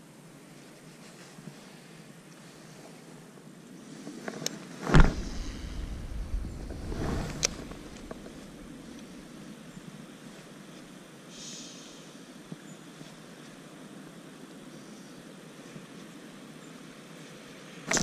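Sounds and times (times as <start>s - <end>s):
fishing rod whoosh: 4.9s - 9.3s.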